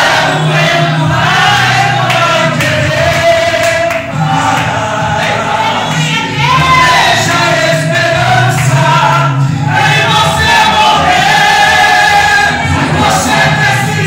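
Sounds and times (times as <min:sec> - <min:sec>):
man singing through loudspeakers: 0:00.0 - 0:14.0.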